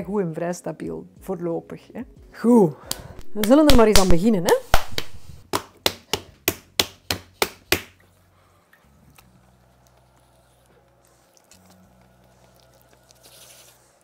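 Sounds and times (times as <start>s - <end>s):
hands slapping clay: 2.9s - 8.0s.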